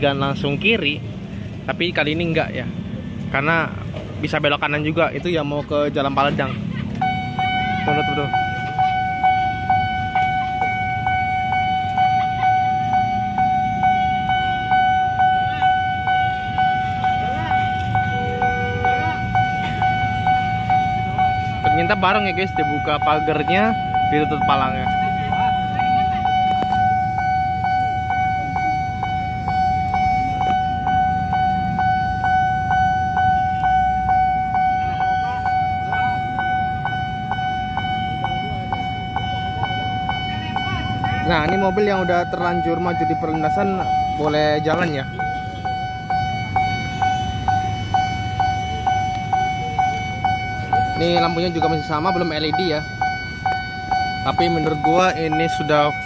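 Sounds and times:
level-crossing warning bell ringing: 0.0s - 56.0s
street traffic rumbling: 0.0s - 56.0s.

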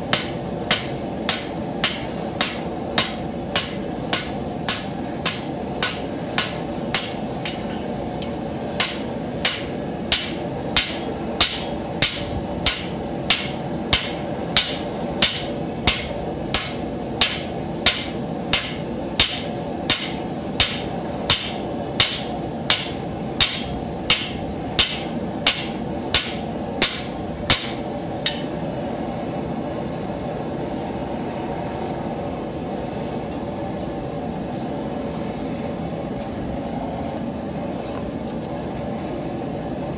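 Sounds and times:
forge burner roaring: 0.0s - 39.9s
hammer ringing on anvil: 0.2s - 28.6s.

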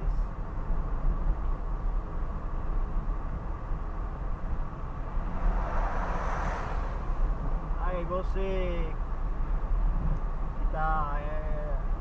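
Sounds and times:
car road and engine noise: 0.0s - 12.0s
rushing of passing truck: 4.6s - 8.4s.

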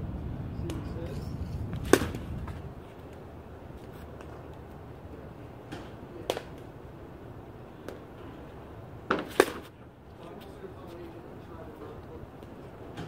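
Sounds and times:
softball bat hitting balls: 1.7s - 3.3s, 5.6s - 6.7s, 7.7s - 8.2s, 9.0s - 9.8s.

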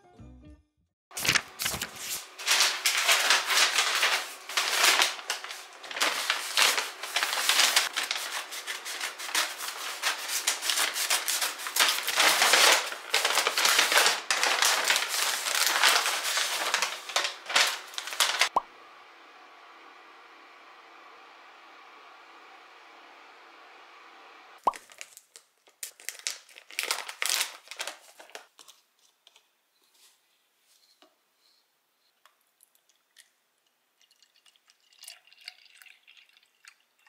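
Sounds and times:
paper bag crinkling and tearing: 1.1s - 18.6s, 24.7s - 29.4s.

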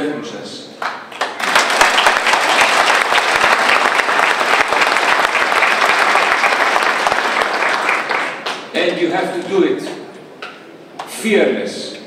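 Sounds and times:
audience applauding: 0.8s - 8.7s.

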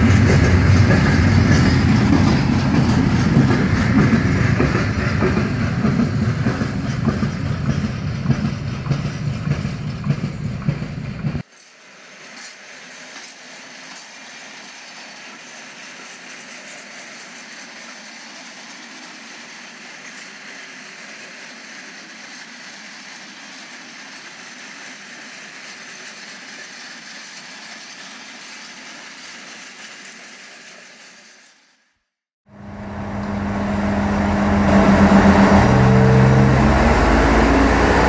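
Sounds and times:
model train motor hiss: 11.5s - 32.0s.

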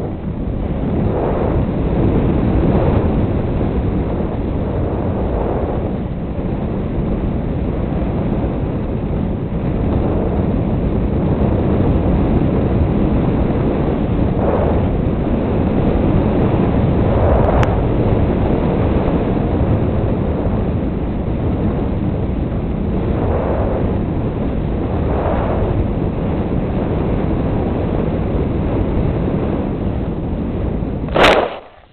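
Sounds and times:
wind rushing over microphone: 0.0s - 31.9s
short click: 31.1s - 31.8s.

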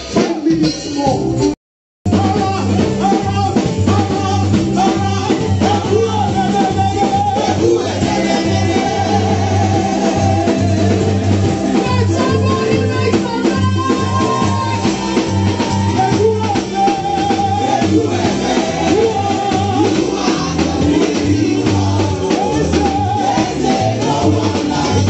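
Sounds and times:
keyboard: 0.0s - 25.0s
steady drum beat: 2.1s - 25.0s.

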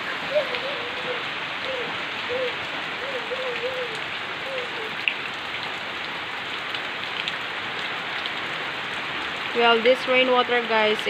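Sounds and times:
steady rain hiss: 0.0s - 11.0s
drip ticks: 3.9s - 5.4s, 6.6s - 8.5s.

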